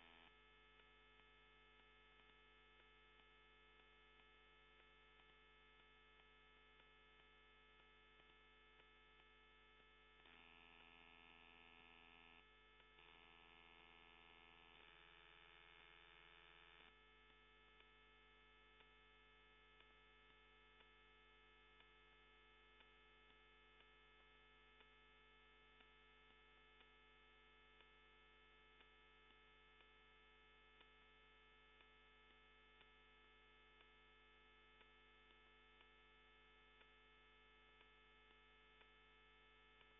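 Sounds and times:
bright electrical whine: 0:00.0 - 0:22.0.

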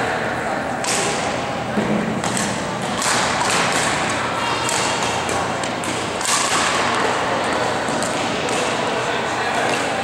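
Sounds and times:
rackets hitting shuttlecock: 0:00.8 - 0:10.0.

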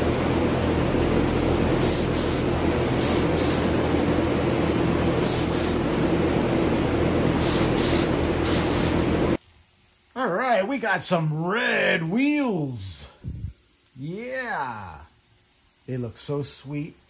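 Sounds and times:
exhaust fan droning: 0:00.0 - 0:17.0
paint spray gun hissing: 0:01.8 - 0:03.8, 0:05.1 - 0:05.9, 0:07.3 - 0:09.4.

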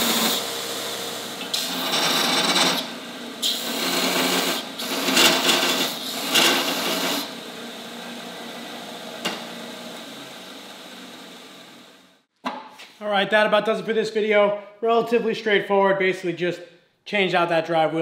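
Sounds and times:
belt grinder grinding metal: 0:00.0 - 0:07.5.

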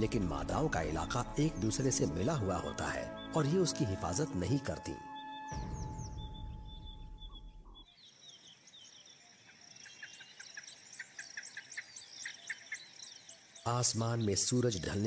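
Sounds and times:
low rumble: 0:05.6 - 0:07.8.

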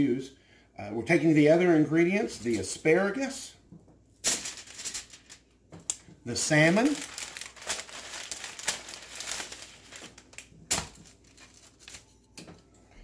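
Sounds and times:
paper and foil crinkling: 0:04.3 - 0:05.5, 0:06.3 - 0:12.3.

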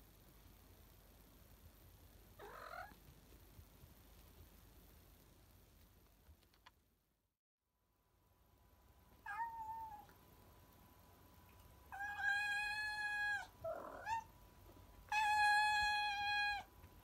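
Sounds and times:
cat meowing: 0:02.4 - 0:03.0, 0:09.2 - 0:10.1, 0:11.9 - 0:14.3, 0:15.1 - 0:16.7
rough cat sound: 0:02.4 - 0:03.0.

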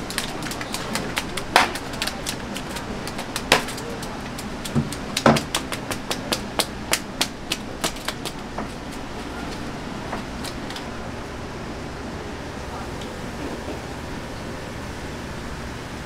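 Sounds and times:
club knocking fish on wet floor: 0:00.1 - 0:08.4.

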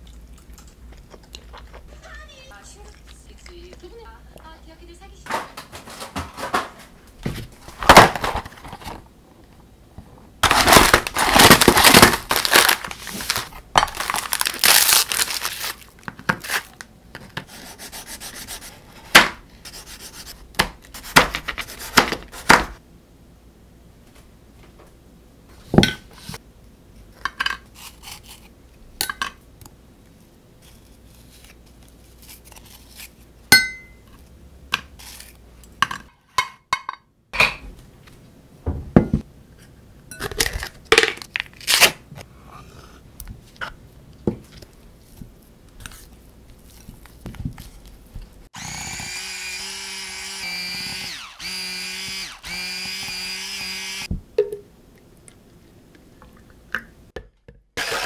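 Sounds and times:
dishes clattering on counter: 0:38.7 - 0:39.2
electric mixer whirring: 0:48.6 - 0:54.1, 0:57.8 - 0:58.0.

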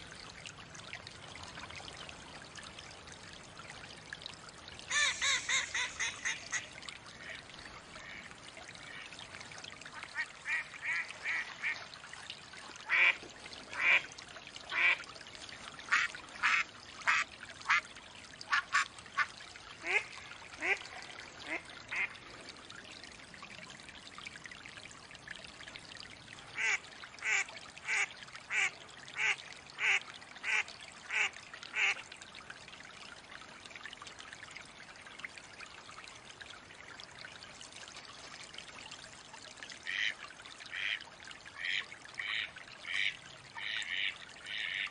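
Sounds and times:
trickle of running water: 0:00.0 - 0:44.9.

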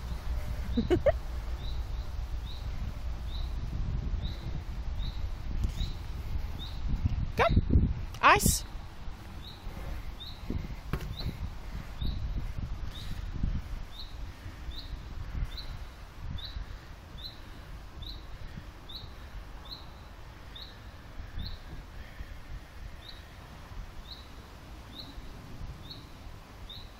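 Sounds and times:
bird chirping: 0:00.0 - 0:03.6, 0:04.2 - 0:06.8, 0:09.4 - 0:11.4, 0:24.0 - 0:26.9
low rumble: 0:00.0 - 0:14.6.

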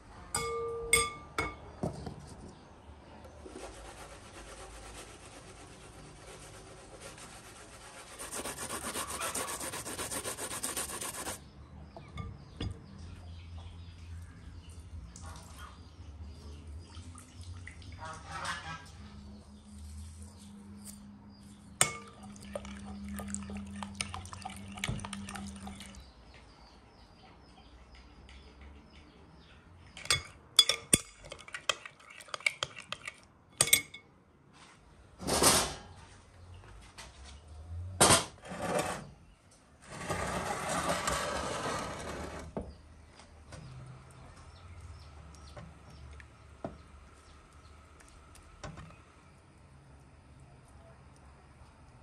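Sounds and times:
dishes and utensils clinking: 0:00.3 - 0:01.7, 0:30.0 - 0:34.1.

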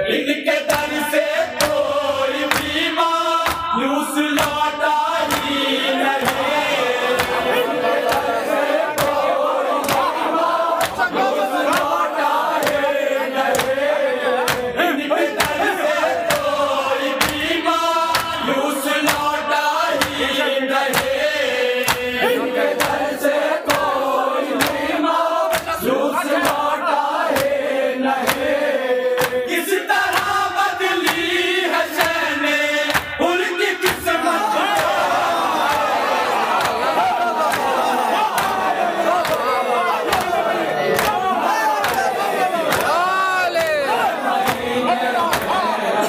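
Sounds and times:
men chanting in unison: 0:00.0 - 0:46.0
hands striking chests: 0:14.5 - 0:14.7, 0:40.1 - 0:43.0, 0:45.3 - 0:45.6.

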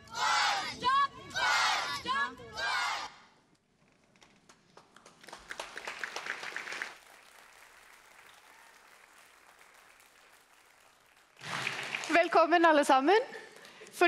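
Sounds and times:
audience applauding: 0:04.7 - 0:12.3.

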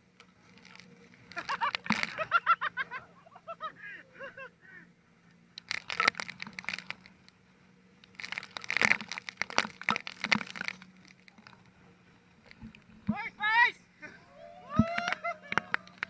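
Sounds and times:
water splashing on camera: 0:08.1 - 0:11.7.

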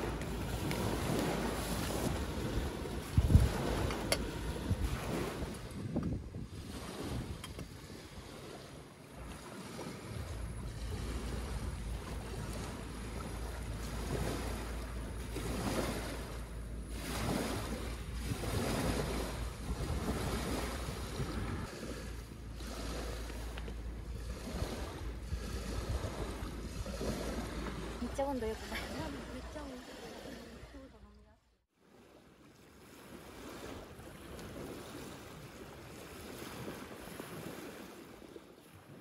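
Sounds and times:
wind gusting over microphone: 0:00.0 - 0:30.8
waves washing on pebbly shore: 0:00.0 - 0:31.0, 0:31.8 - 0:39.0.

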